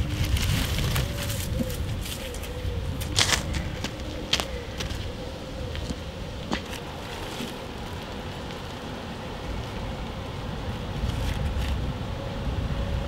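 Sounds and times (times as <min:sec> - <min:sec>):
paper bag rustling: 0:00.0 - 0:05.1, 0:06.6 - 0:08.8.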